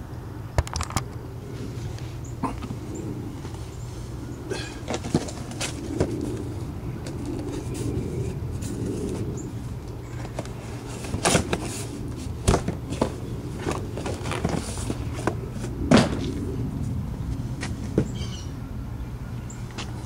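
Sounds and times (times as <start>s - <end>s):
cardboard box knocks and rustles: 15.9s - 16.3s.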